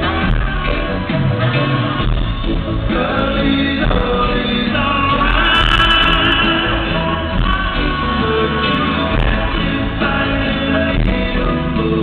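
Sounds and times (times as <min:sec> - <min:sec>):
live band playing: 0:00.0 - 0:12.0
person singing lead vocal: 0:02.8 - 0:12.0.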